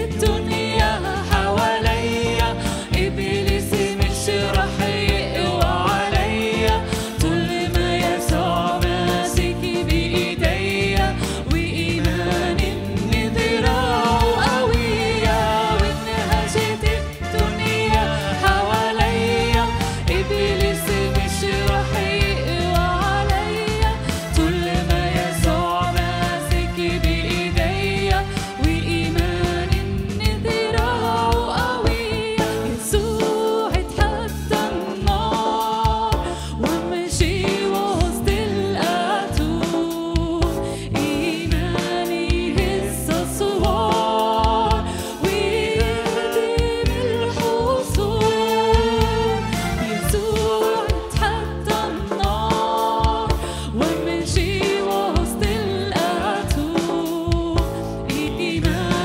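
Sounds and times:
bass: 0:00.0 - 0:59.0
keyboards: 0:00.0 - 0:59.0
woman singing into microphone: 0:00.0 - 0:59.0
electronic drum beat: 0:00.1 - 0:36.2.

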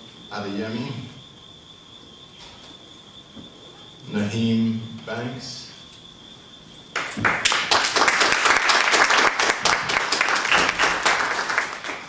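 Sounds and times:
audience clapping: 0:07.0 - 0:12.0.

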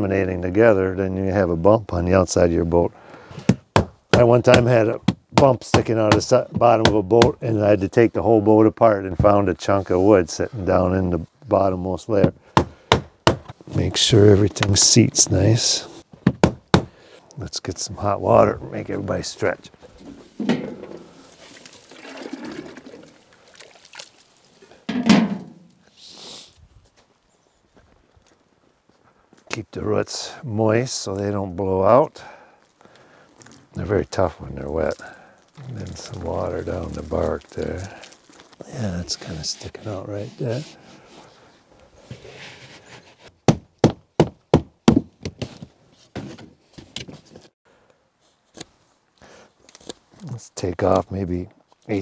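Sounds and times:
wooden knocks: 0:20.0 - 0:21.1, 0:24.9 - 0:25.6
loud thump: 0:20.4 - 0:21.1, 0:24.9 - 0:25.7
hot water sloshing in pan: 0:20.4 - 0:25.4.

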